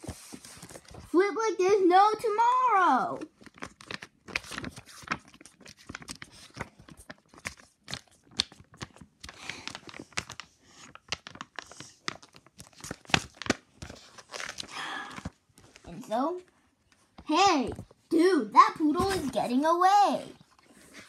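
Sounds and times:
paper pages flipping: 0.0 - 1.1, 3.2 - 16.0, 18.8 - 19.6.

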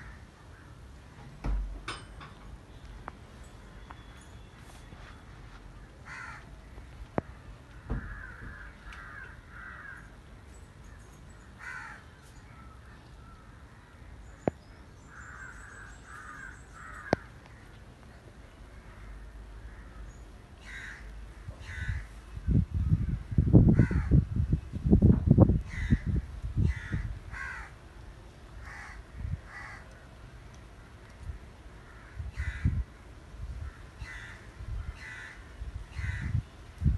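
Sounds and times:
crows cawing: 0.0 - 0.8, 6.0 - 6.9, 7.8 - 10.2, 11.6 - 12.1, 15.1 - 17.7, 18.7 - 22.2, 23.8 - 24.2, 25.7 - 27.8, 28.6 - 30.0, 31.8 - 32.8, 33.6 - 36.4.

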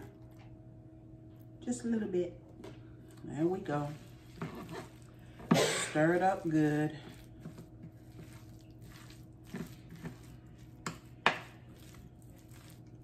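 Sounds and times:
spoon stirring wet food: 3.0 - 13.0.

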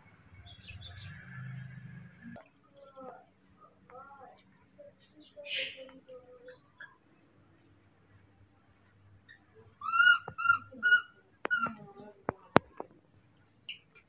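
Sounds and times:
baby monkey calling: 5.5 - 5.8, 9.4 - 11.9.

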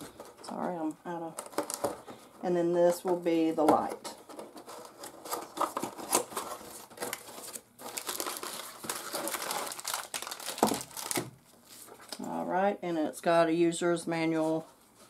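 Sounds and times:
plastic wrap crinkling: 0.0 - 2.2, 4.3 - 12.3.

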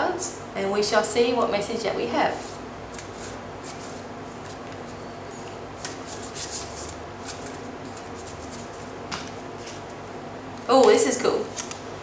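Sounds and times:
cards being shuffled: 5.8 - 9.9, 11.5 - 11.8.

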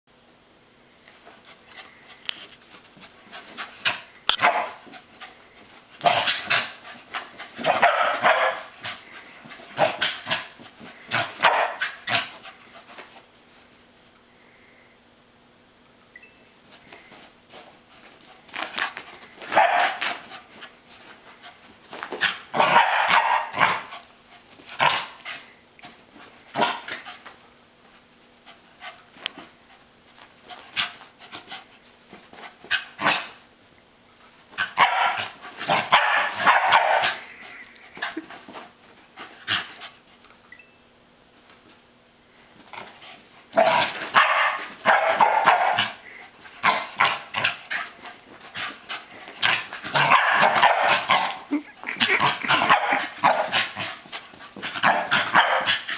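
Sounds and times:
dog barking: 7.7 - 8.7, 11.4 - 11.8, 19.6 - 20.0, 22.6 - 23.8, 34.8 - 35.2, 35.8 - 37.2, 44.2 - 45.9, 54.9 - 55.8.

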